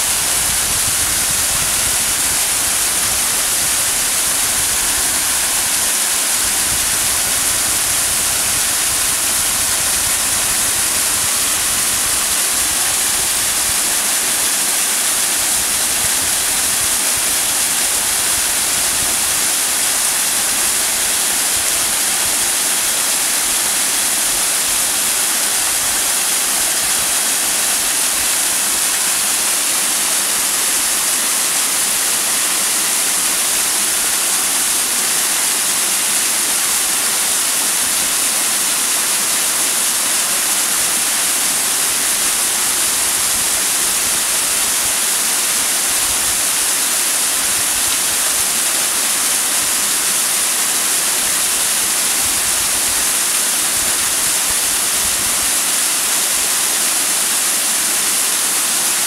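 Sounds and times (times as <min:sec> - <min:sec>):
waterfall rushing: 0:00.0 - 0:59.0.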